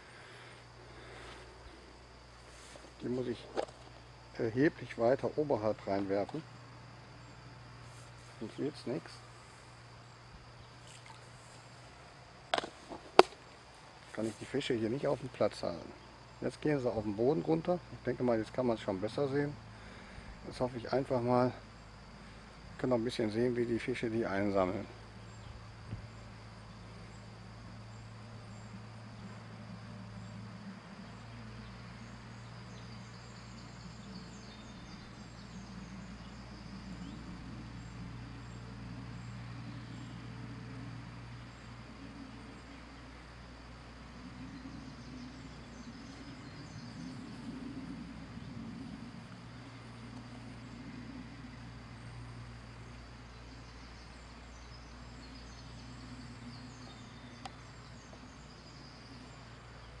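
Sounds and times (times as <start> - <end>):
even hiss: 0.0 - 60.0
low hum: 0.0 - 60.0
faint bird chirps: 24.7 - 60.0.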